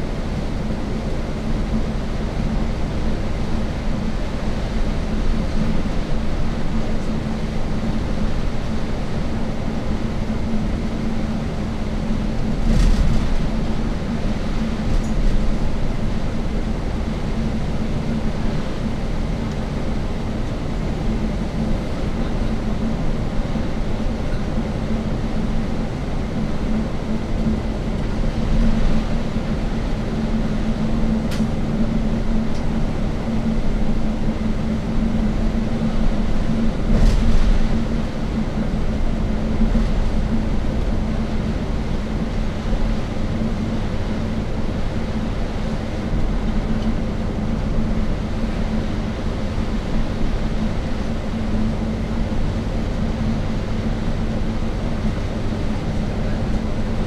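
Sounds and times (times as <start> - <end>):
constant hum: 0.0 - 57.0
vehicle cabin rumble: 0.0 - 57.0.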